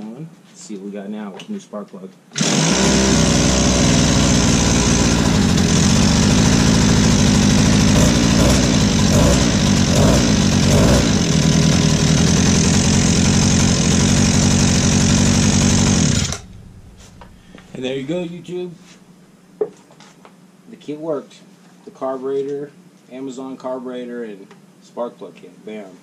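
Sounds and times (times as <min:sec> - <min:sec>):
scooter engine running: 0:02.4 - 0:18.1.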